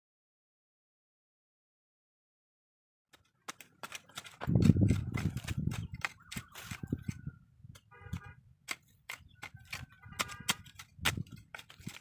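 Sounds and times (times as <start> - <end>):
hoe chopping and scraping earth: 3.1 - 12.0.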